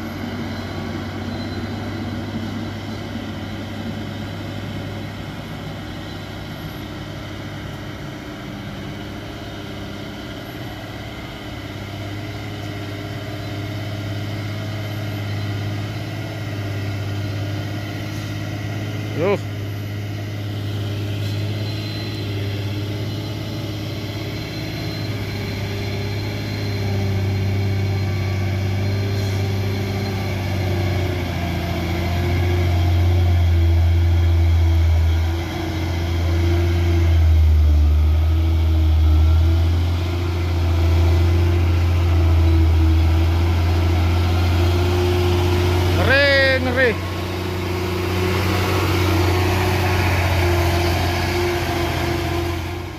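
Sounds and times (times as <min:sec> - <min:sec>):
truck diesel engine at low revs: 0:00.0 - 0:52.9.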